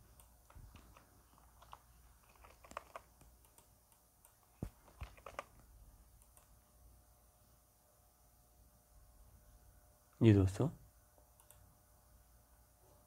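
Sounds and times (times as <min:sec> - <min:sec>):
mouse clicks: 0:00.1 - 0:05.5, 0:06.2 - 0:06.5
keyboard keystrokes: 0:00.2 - 0:05.6.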